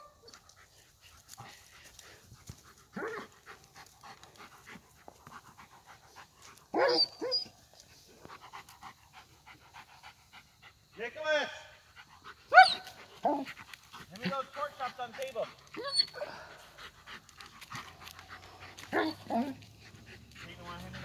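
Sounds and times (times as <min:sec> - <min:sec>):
dog panting: 0:00.3 - 0:21.0
ball rolling across grass: 0:00.7 - 0:06.8
dog crying: 0:12.5 - 0:13.5, 0:15.8 - 0:16.5.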